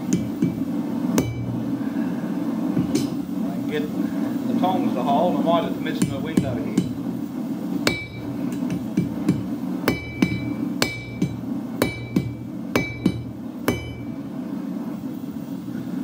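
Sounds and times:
hammer ringing on anvil: 1.2s - 1.6s, 7.9s - 14.2s.

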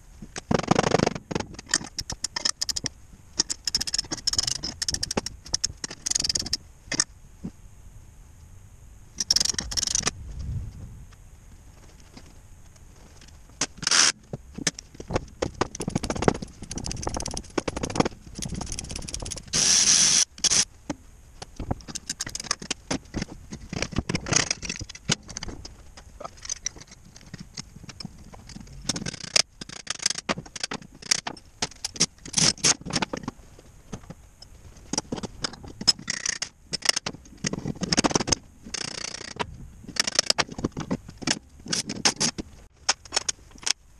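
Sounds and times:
metal parts clanking and scraping: 13.2s - 20.6s, 21.6s - 33.3s, 34.0s - 43.8s
loud burst of noise: 19.3s - 20.6s.

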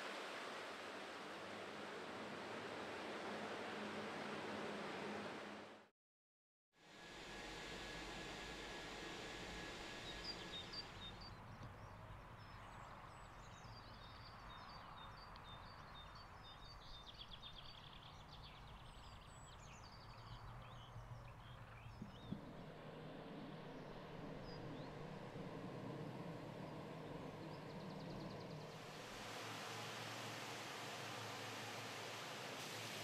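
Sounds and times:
soft hiss: 28.5s - 33.0s.

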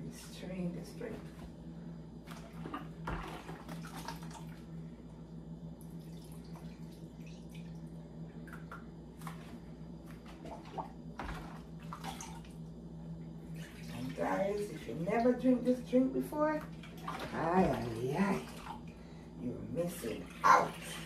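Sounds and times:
low steady hum: 0.0s - 21.0s
liquid splashing and dripping: 5.8s - 9.5s, 10.1s - 12.7s.

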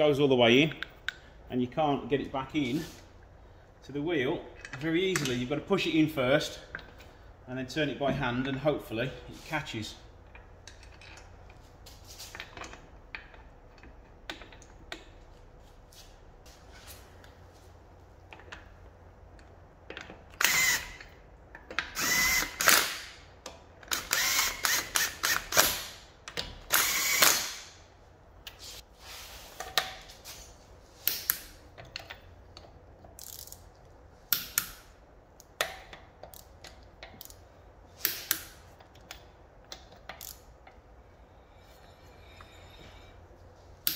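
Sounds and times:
impact wrench bursts: 20.4s - 21.1s, 21.9s - 23.2s, 23.9s - 26.0s, 26.7s - 27.8s.

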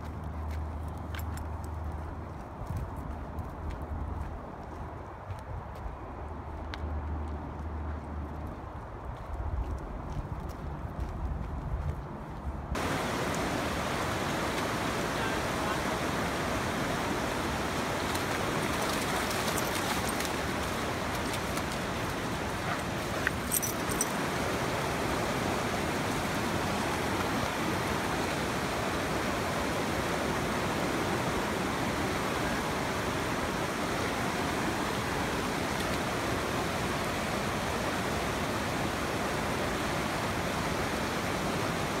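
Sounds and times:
stream water over rocks: 12.8s - 42.0s.

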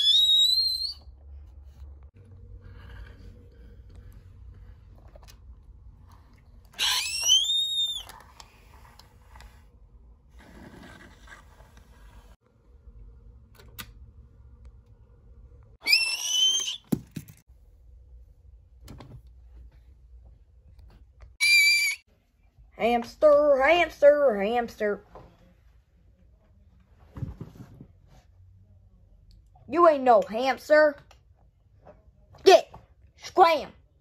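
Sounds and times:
shrill whistle-like squeal: 0.0s - 1.1s, 6.8s - 8.1s, 15.8s - 16.9s, 21.4s - 22.1s.

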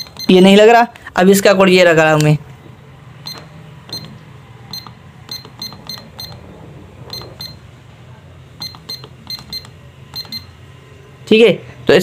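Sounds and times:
scale keypad beeps: 0.0s - 0.6s, 3.2s - 6.4s, 7.0s - 7.7s, 8.6s - 10.6s.

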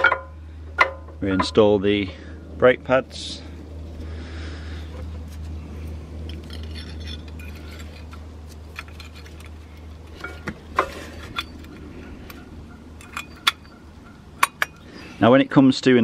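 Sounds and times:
steady low hum: 0.0s - 16.0s
metallic clicks of brake pads: 6.2s - 13.8s, 14.4s - 14.9s.

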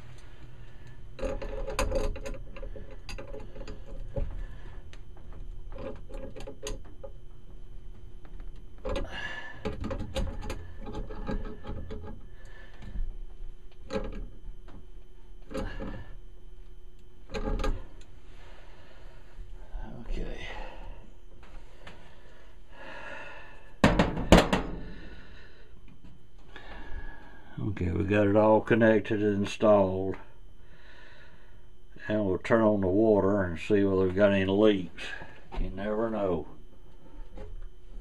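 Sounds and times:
metal hose couplings clicking: 1.2s - 4.1s.

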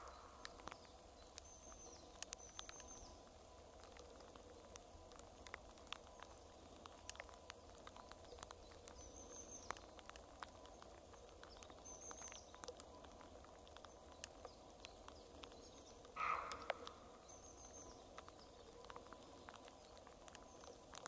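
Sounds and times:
water drips: 0.0s - 21.0s
high bird call: 16.2s - 17.0s.

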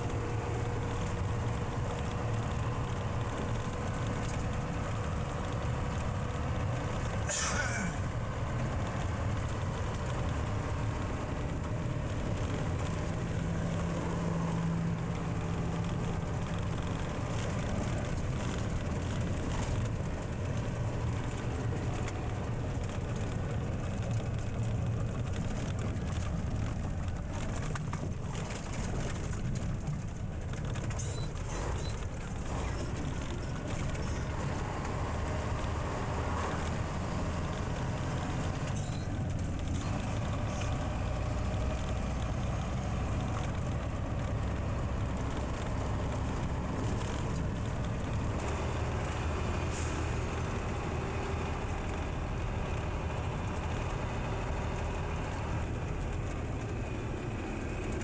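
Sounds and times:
road rumble: 0.0s - 58.0s
truck engine droning: 0.0s - 58.0s.

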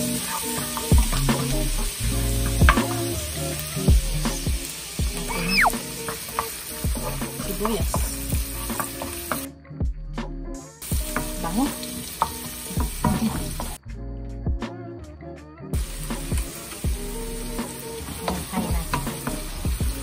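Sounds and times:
garlic and onion sizzling in oil: 0.0s - 9.5s, 10.8s - 13.8s, 15.8s - 20.0s.

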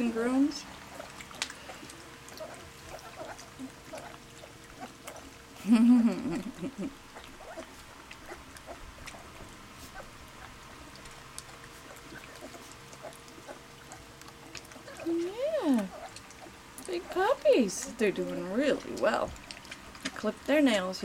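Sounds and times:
puppies lapping from metal bowl: 0.0s - 5.6s, 6.5s - 21.0s
puppy groaning whine: 11.8s - 17.2s.

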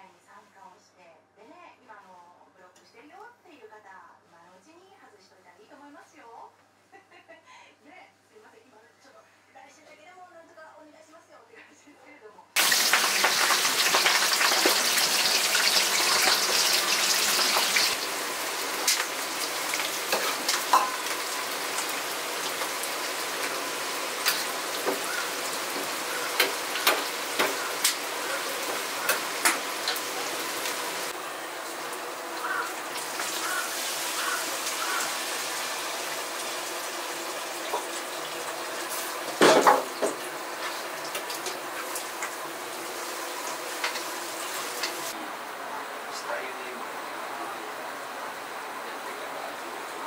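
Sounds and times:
onions sizzling in oil: 12.6s - 45.2s
kitchen utensils clinking: 18.8s - 21.9s.

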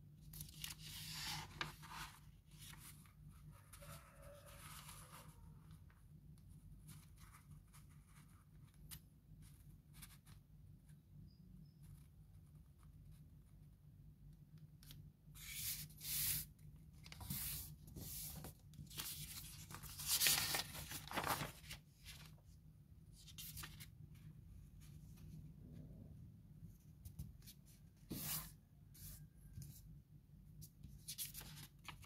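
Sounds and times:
paper rustling and crinkling: 0.3s - 3.2s, 17.0s - 22.4s, 31.0s - 32.0s.

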